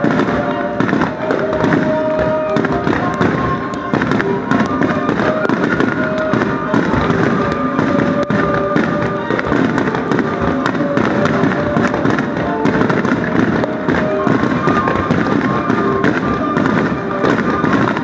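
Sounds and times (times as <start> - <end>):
fireworks bursting and crackling: 0.0 - 18.0
music with held notes: 0.0 - 18.0.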